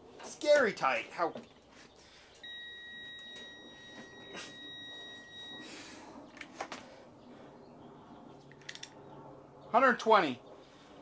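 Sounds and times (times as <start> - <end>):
high electronic beep: 2.4 - 5.7.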